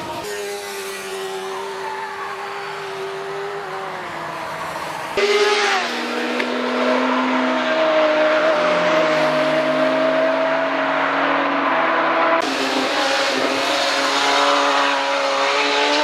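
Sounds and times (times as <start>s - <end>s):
sports car engine: 0.0s - 16.0s
motorcycle engine at high revs: 5.1s - 10.4s, 12.2s - 16.0s.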